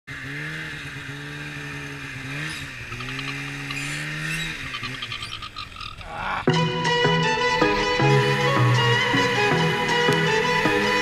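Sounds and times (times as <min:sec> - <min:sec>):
snowmobile engine under throttle: 0:00.1 - 0:06.5.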